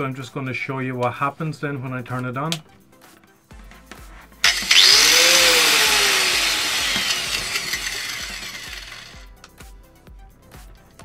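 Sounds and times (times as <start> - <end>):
angle grinder winding down: 4.4 - 9.3.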